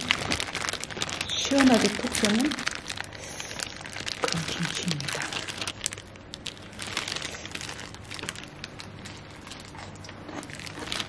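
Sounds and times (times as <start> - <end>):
crunchy chewing: 2.6 - 11.0.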